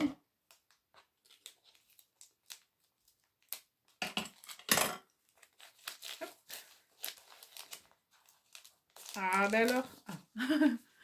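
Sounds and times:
paper crinkling: 0.4s - 4.6s, 5.2s - 10.4s
paper and tape rustling: 0.5s - 4.6s, 5.2s - 10.4s
loud paper crackles: 5.3s - 10.2s.

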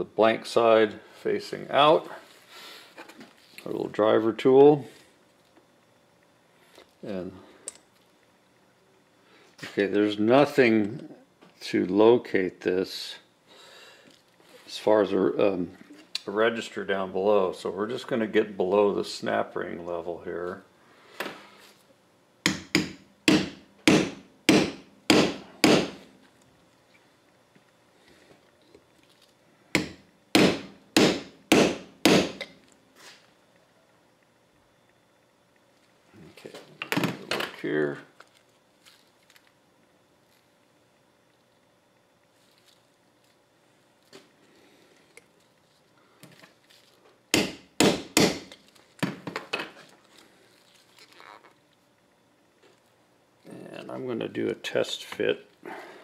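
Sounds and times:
hammer striking metal: 22.5s - 26.0s, 29.8s - 32.5s, 47.4s - 48.5s.

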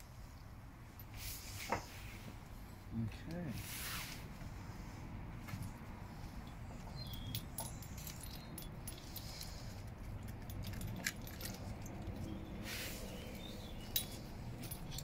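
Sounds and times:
short hissing rustle: 3.5s - 5.0s, 12.6s - 13.4s
light metallic jingling: 5.5s - 15.0s.

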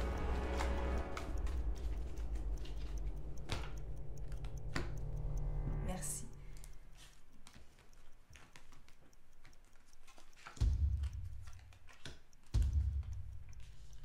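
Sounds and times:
deep bass pulse: 0.0s - 6.7s
cards being shuffled: 7.0s - 12.6s.

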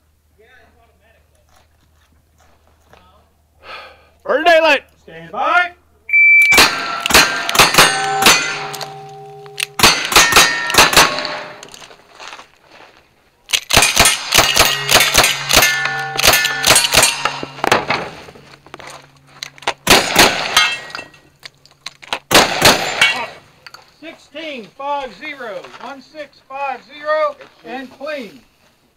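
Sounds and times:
shotgun blasts: 6.5s - 11.6s, 13.7s - 18.1s, 19.8s - 20.7s, 22.3s - 23.3s
steel targets clanging: 6.5s - 11.9s, 13.6s - 21.7s, 22.4s - 23.9s
rapid gunshots: 6.6s - 8.7s, 9.8s - 11.5s, 13.7s - 17.3s, 19.8s - 20.6s, 22.3s - 23.2s.

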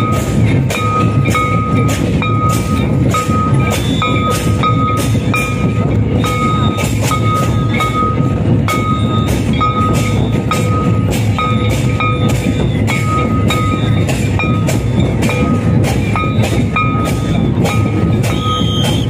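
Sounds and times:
drum ensemble playing: 0.0s - 19.0s
ringing metal clang: 0.0s - 19.0s.

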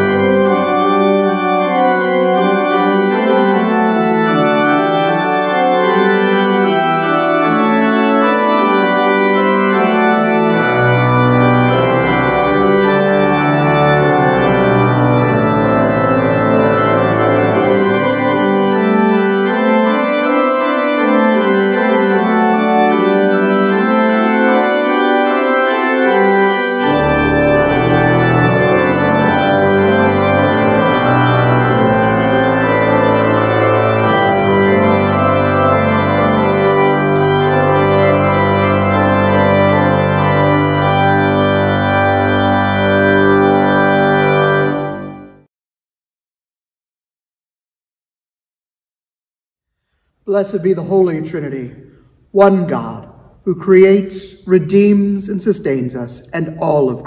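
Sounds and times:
deep organ pedal bass notes: 0.0s - 45.4s
church organ chords: 0.0s - 45.5s, 50.0s - 57.0s.

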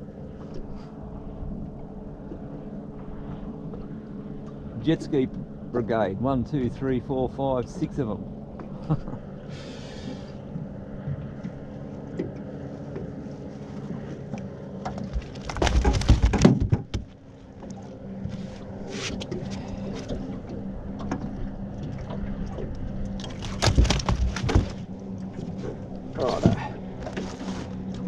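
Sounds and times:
jet ski engines droning: 0.0s - 15.6s, 16.7s - 28.0s
knocking and rustling: 14.8s - 17.2s, 23.3s - 24.9s.

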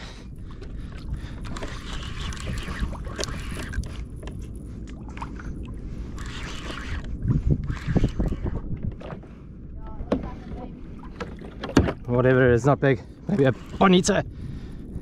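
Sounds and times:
water lapping against a kayak: 0.0s - 15.0s
wind on microphone: 0.0s - 15.0s.

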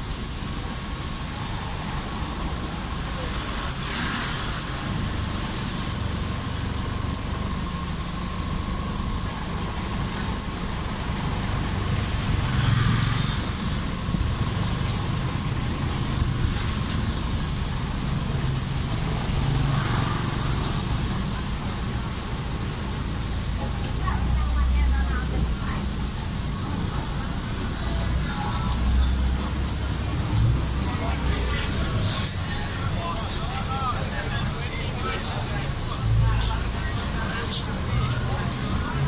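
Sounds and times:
car and motorbike engines rumbling: 0.0s - 39.0s.

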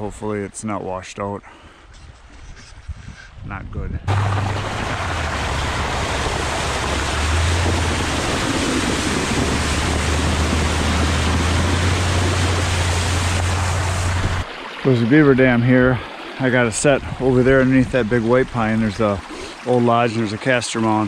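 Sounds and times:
engine droning: 4.1s - 15.8s
tyre splashing through water: 4.1s - 21.0s.

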